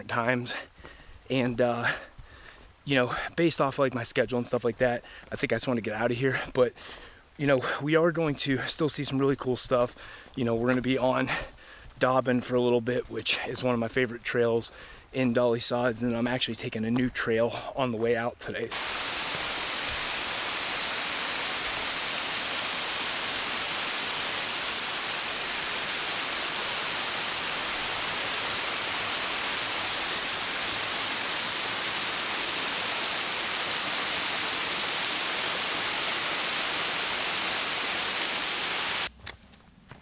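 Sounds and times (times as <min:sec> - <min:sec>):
steady rushing noise: 0:18.7 - 0:39.1.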